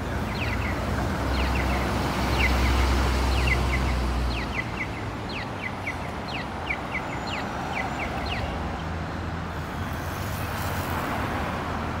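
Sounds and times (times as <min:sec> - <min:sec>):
crosswalk signal chirps and ticks: 0:00.0 - 0:08.9
city traffic noise: 0:00.0 - 0:12.0.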